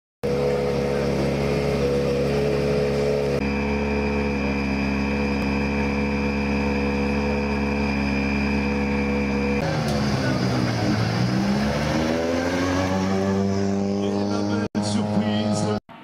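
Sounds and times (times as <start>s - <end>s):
car engine idling with whine: 0.2s - 16.0s.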